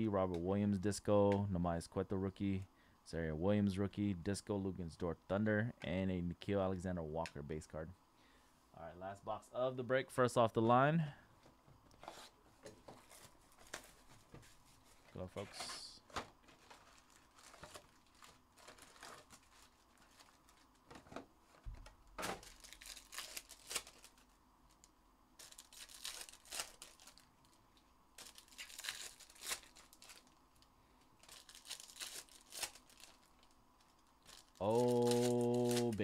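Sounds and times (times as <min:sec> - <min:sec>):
foil wrappers tearing and crinkling: 0:16.4 - 0:20.8, 0:22.2 - 0:24.8, 0:25.4 - 0:27.6, 0:28.2 - 0:30.6, 0:31.2 - 0:36.0.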